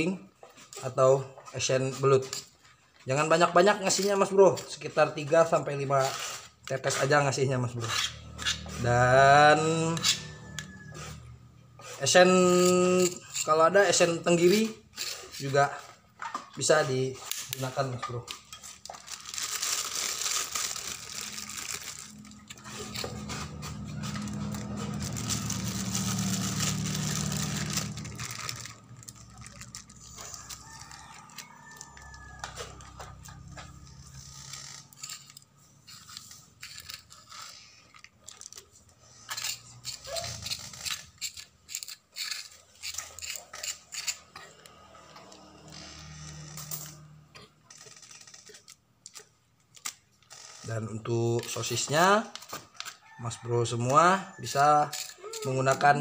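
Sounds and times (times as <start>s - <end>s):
metal spoon scraping on stone: 3.9s - 16.7s, 21.2s - 37.8s, 39.2s - 47.0s
plastic bag crinkling: 17.4s - 41.6s, 47.7s - 49.3s.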